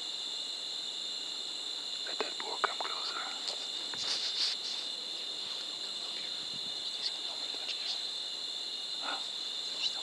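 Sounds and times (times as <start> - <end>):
crickets trilling: 0.0 - 10.0
rustles: 2.8 - 8.1.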